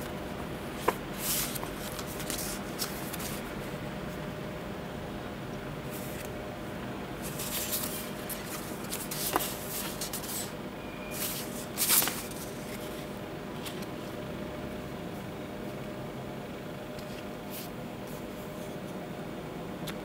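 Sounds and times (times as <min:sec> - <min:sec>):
paper cards rustling: 0:00.4 - 0:03.5, 0:07.2 - 0:10.5, 0:11.2 - 0:14.0.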